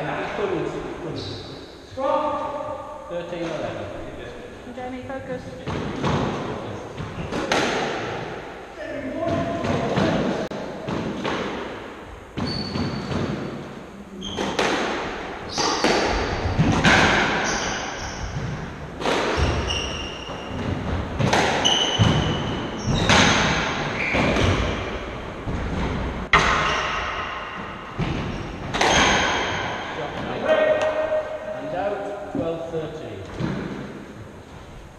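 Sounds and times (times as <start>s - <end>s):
squash ball hits echoing: 5.6s - 8.6s, 9.2s - 32.5s
shoes squeaking on wooden floor: 12.4s - 13.2s, 19.2s - 24.7s.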